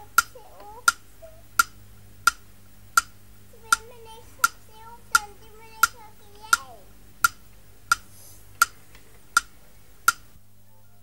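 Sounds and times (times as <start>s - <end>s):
young child's voice: 0.0s - 1.4s, 3.6s - 6.9s
clock ticking: 0.0s - 10.4s.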